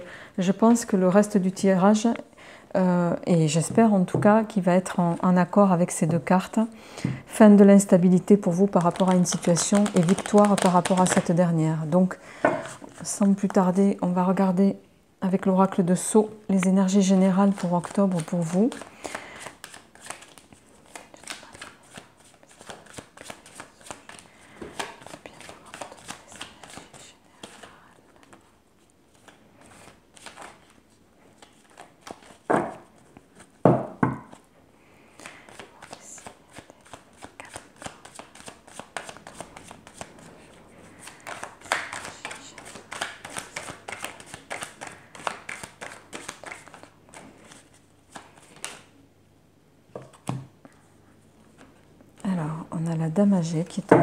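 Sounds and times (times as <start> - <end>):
cards being shuffled: 8.5 - 11.4, 17.2 - 28.4, 29.1 - 30.8, 31.4 - 32.5, 35.2 - 40.3, 40.9 - 48.9.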